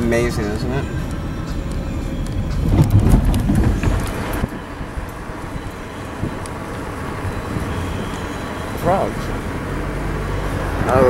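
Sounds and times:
car cabin rumble: 0.0 - 11.0.

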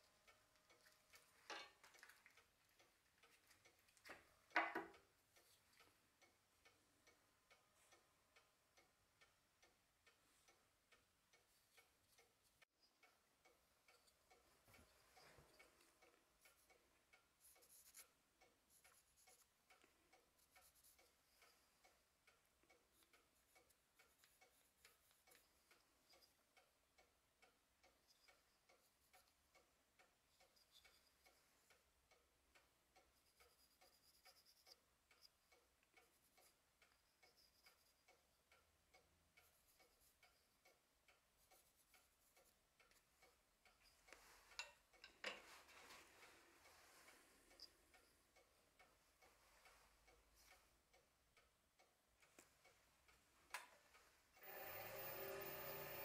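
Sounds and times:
faint even ticking: 0.0 - 56.0
pencil scratching on wood: 17.4 - 19.6, 20.4 - 21.5, 33.1 - 35.4, 36.0 - 38.2, 39.4 - 40.5, 41.4 - 43.0.

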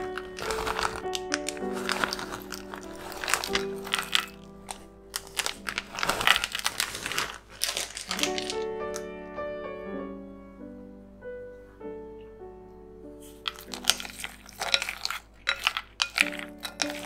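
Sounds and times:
beans pouring into a bowl: 0.0 - 8.6, 13.4 - 17.0
slow melody background music: 0.0 - 17.0.

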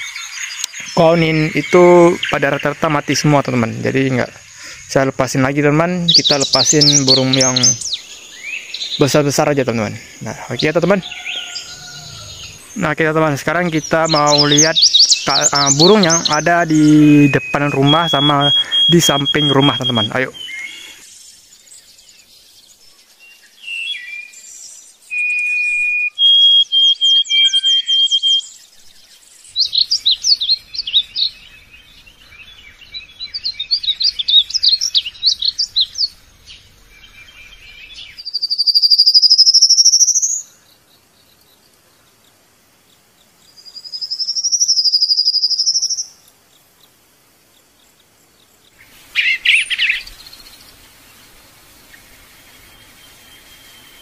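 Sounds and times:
harsh bird call: 0.0 - 21.0, 25.1 - 28.6, 48.8 - 50.7
songbirds whistling and trilling: 0.0 - 41.8, 43.4 - 46.3, 47.8 - 54.0
loud rising bird whistles: 17.0 - 21.0, 25.1 - 28.6, 38.5 - 40.4.

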